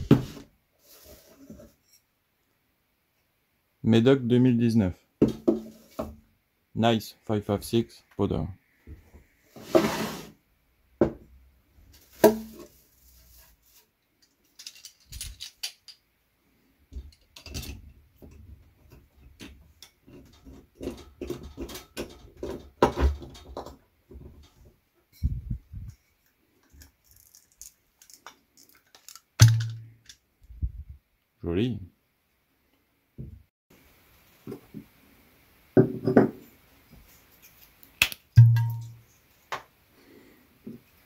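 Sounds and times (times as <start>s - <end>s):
corkscrew clicking and scraping: 26.2s - 29.3s.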